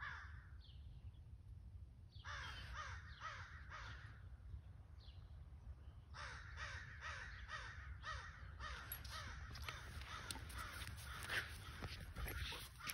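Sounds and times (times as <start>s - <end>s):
animal harsh calls: 8.6s - 12.9s.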